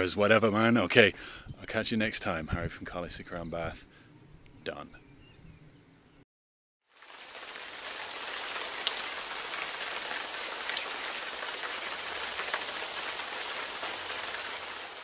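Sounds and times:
rain-like hiss with crackles: 0:06.8 - 0:15.0.

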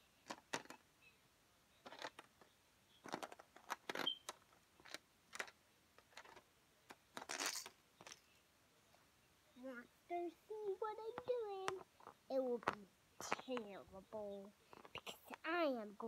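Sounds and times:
handling rustles: 0:10.4 - 0:15.5.

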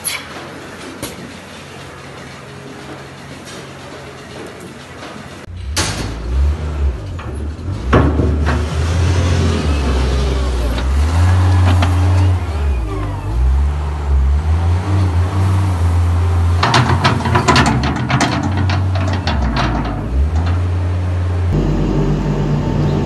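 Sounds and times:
loader engine running under load: 0:00.5 - 0:23.0
loader bucket scraping and knocking: 0:02.9 - 0:13.5, 0:14.9 - 0:20.8.

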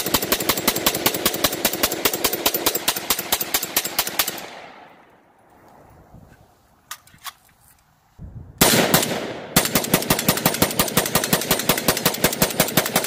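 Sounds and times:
rifle firing rapid shots: 0:00.0 - 0:04.9, 0:08.6 - 0:13.0.

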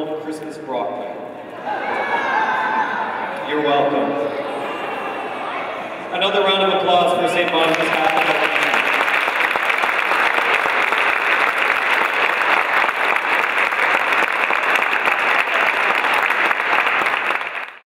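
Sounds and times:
audience applauding: 0:07.3 - 0:17.8.

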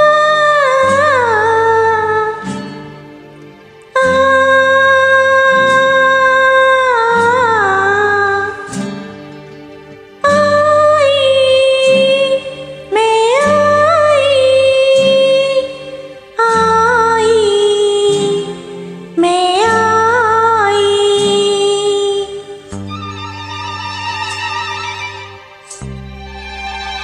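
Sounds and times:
soft backing track chords: 0:00.0 - 0:27.0
woman singing high notes: 0:04.0 - 0:08.7.

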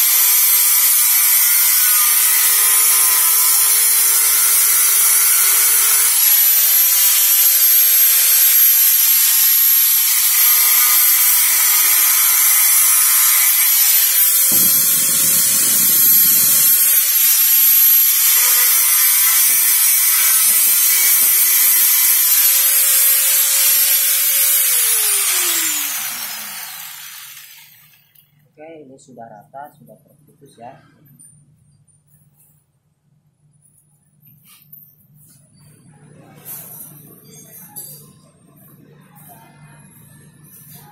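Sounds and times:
grinder disc grinding metal: 0:00.0 - 0:28.0
grinder spinning down: 0:00.0 - 0:28.1
angle grinder whining: 0:00.0 - 0:28.2.

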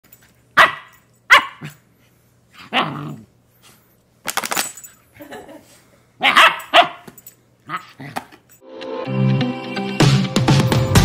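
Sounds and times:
puppy barking: 0:00.6 - 0:01.8, 0:06.2 - 0:07.1
plastic bottle crinkling: 0:04.3 - 0:04.8.

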